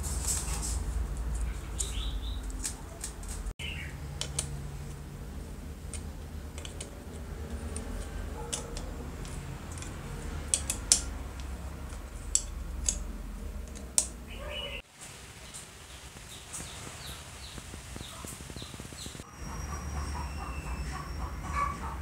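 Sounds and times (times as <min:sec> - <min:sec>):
bird chirp: 0:01.4 - 0:02.6, 0:03.6 - 0:04.0, 0:14.2 - 0:14.8, 0:15.4 - 0:22.0
low steady hum: 0:03.4 - 0:22.0
metal parts and tools clicking: 0:04.1 - 0:05.0, 0:05.7 - 0:14.3.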